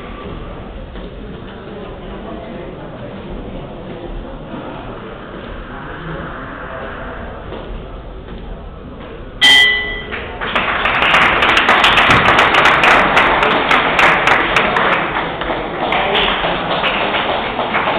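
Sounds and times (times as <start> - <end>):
boxing ring bell: 9.4 - 10.2
audience clapping: 10.1 - 17.9.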